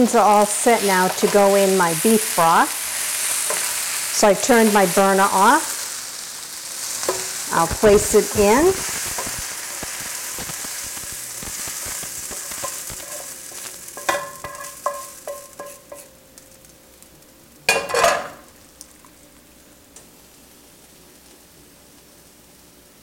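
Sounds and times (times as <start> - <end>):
onions sizzling: 0.0 - 23.0
metal utensil tapping pan: 7.0 - 7.3, 11.9 - 13.3, 13.9 - 16.2, 17.7 - 18.4.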